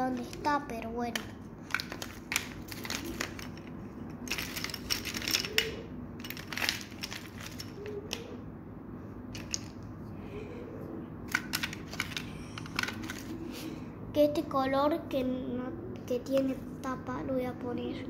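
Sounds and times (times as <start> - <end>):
markers and pencils clattering: 0.0 - 8.4, 9.3 - 9.8, 11.3 - 13.7.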